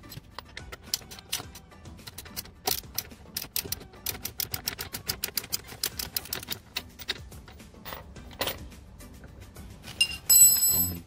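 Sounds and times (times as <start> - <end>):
ratchet wrench clicking: 0.8 - 7.3.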